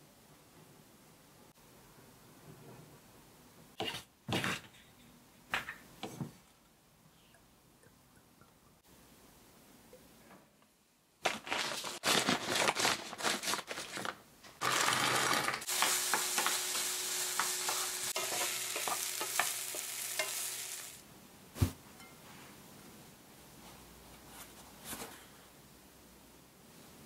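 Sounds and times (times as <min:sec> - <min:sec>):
food sizzling in a frying pan: 0:14.6 - 0:21.0
wooden spatula scraping pan: 0:15.2 - 0:20.8
thump: 0:21.6 - 0:21.8.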